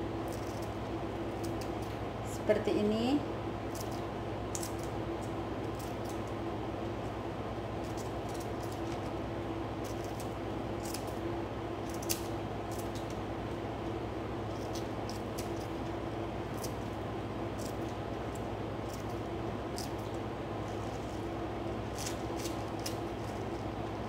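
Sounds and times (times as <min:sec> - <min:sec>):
steady low hum: 0:00.0 - 0:24.0
scissors snipping lettuce: 0:00.2 - 0:00.7, 0:03.7 - 0:06.3, 0:07.8 - 0:09.1, 0:09.8 - 0:11.2, 0:11.8 - 0:13.2, 0:14.5 - 0:15.9, 0:16.5 - 0:21.2, 0:21.9 - 0:24.0.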